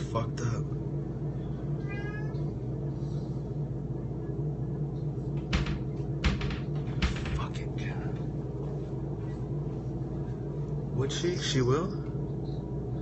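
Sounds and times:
low background hum: 0.0 - 13.0
kitten meowing: 1.8 - 2.4
knocks of handling: 5.4 - 8.3.

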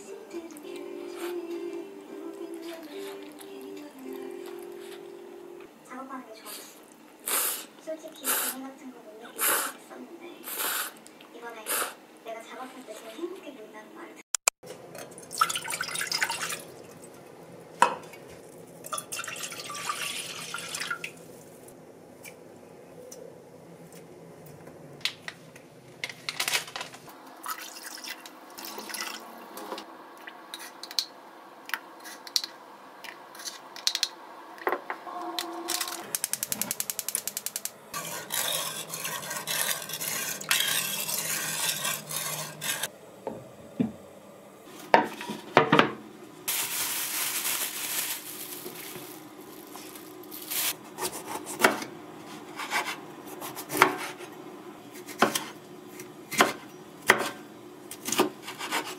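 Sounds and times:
gas burner hiss: 6.4 - 8.7, 9.4 - 12.0
gas burner igniter clicking: 36.1 - 37.8
knife chopping on wooden board: 52.6 - 54.2.

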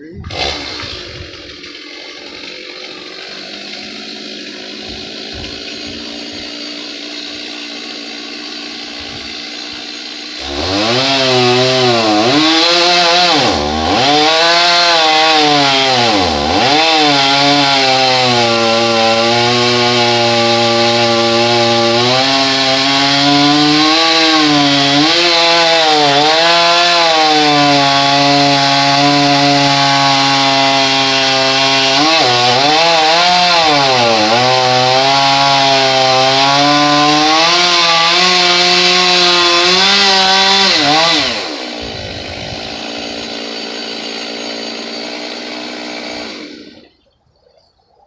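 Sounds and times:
chainsaw running: 0.0 - 47.0.

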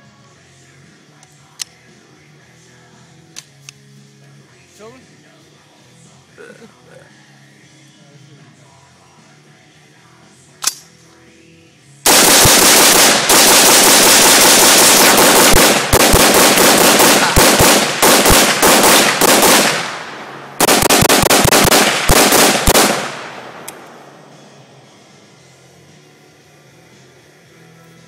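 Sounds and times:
rifle shots with echo: 12.0 - 24.2.

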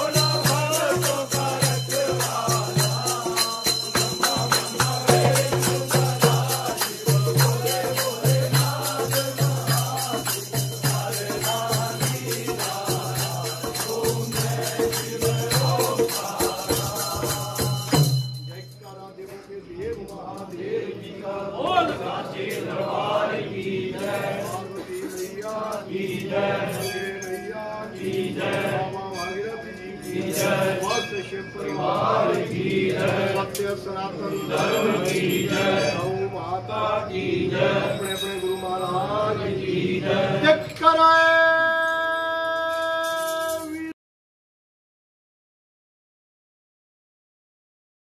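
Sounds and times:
hand drum: 0.0 - 11.1
group singing devotional song: 0.0 - 18.3, 18.9 - 43.2
jingling percussion: 0.0 - 44.0.

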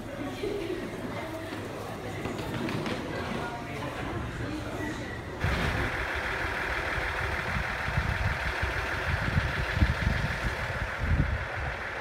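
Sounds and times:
diesel railcar engine idling: 5.4 - 12.0.

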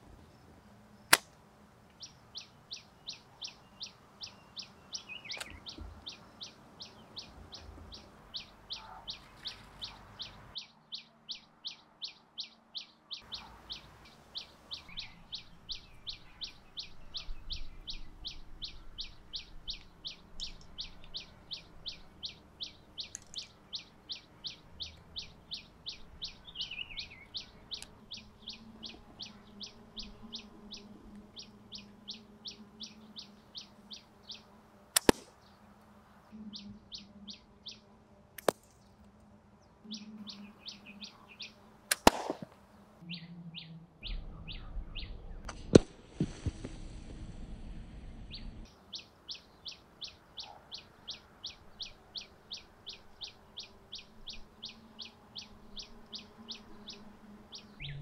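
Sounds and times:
slingshot cracks: 1.1 - 1.4, 35.0 - 35.4, 38.4 - 38.9, 41.9 - 42.6, 45.5 - 46.5
bird chirping: 1.9 - 45.5, 48.2 - 58.0.

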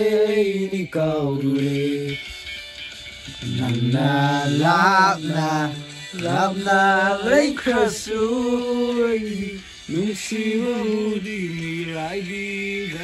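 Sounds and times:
man singing slow notes: 3.3 - 13.0.

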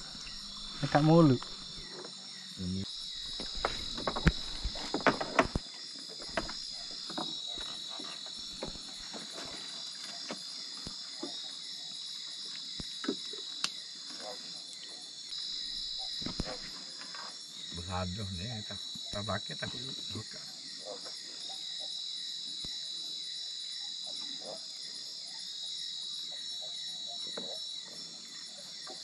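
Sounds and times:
night insects chirring: 0.0 - 29.0
knocks in wooden boat: 3.3 - 5.6.

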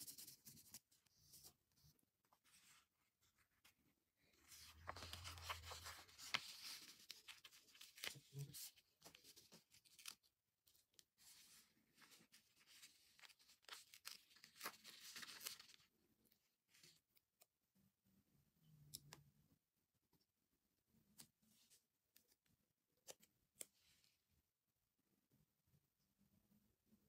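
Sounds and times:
paper sticker sheet crinkling: 4.4 - 10.3, 11.2 - 15.9.

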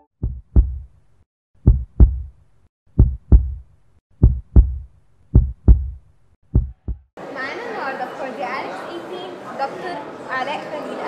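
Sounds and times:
heartbeat thumps: 0.2 - 0.9, 1.6 - 7.1.

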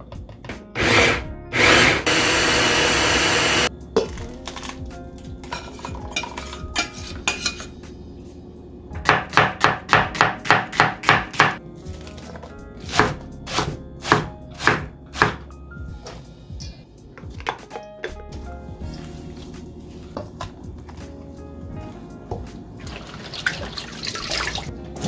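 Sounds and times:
knife chopping on cutting board: 9.0 - 11.6, 12.9 - 15.4.

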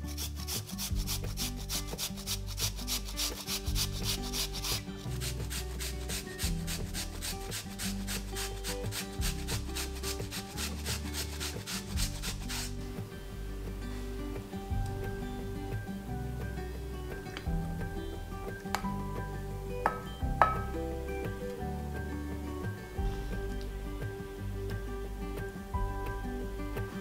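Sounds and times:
potato scraping on grater: 0.0 - 12.8.

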